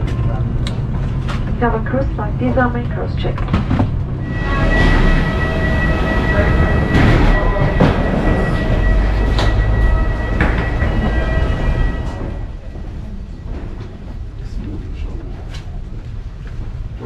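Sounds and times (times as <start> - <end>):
high-pitched whine: 0.0 - 13.6
footsteps on metal floor: 6.8 - 14.2.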